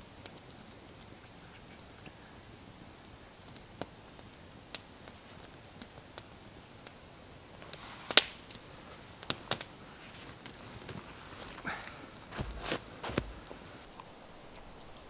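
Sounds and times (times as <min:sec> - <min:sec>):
campfire crackling and popping: 0:00.0 - 0:14.9
sharp snaps: 0:07.6 - 0:08.6, 0:09.2 - 0:09.8
footsteps rustling on forest floor: 0:08.8 - 0:15.0.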